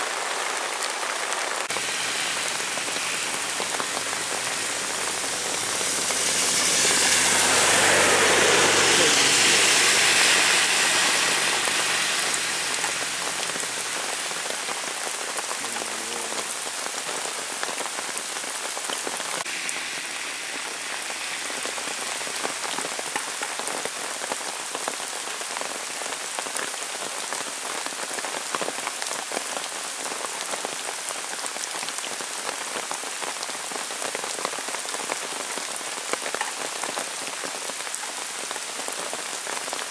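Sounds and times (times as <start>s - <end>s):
heavy rain falling: 0.0s - 39.9s
tyres on wet road: 0.0s - 39.9s
vehicle engine passing: 1.7s - 15.1s, 19.4s - 24.0s.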